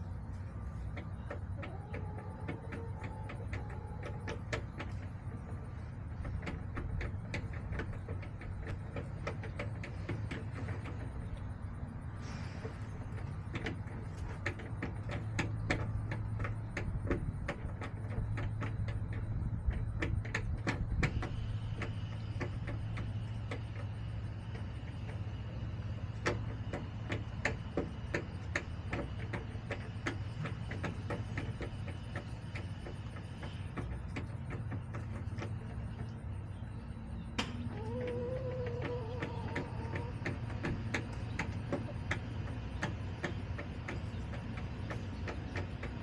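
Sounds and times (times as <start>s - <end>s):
chickens pecking hard surface: 0.0s - 46.0s
steady low hum: 0.0s - 46.0s
hen calling: 37.4s - 40.3s.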